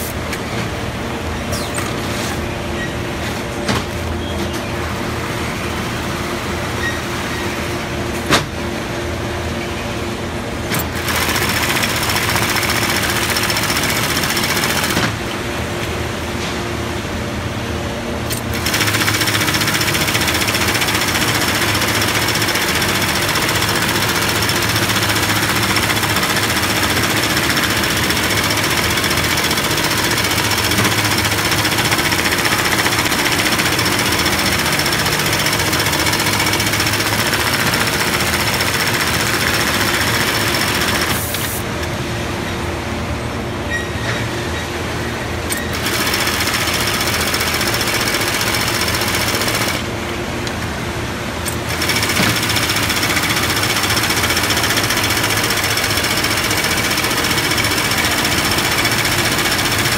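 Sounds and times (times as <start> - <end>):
machine hum: 10.1 - 43.4
sewing machine rapid clatter: 10.7 - 15.2, 18.3 - 41.6, 45.6 - 49.9, 51.5 - 59.9.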